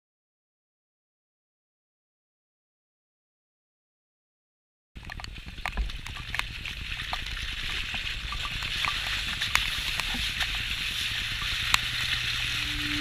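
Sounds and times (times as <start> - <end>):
low engine rumble: 5.1 - 13.0
tyres splashing through mud: 5.2 - 13.0.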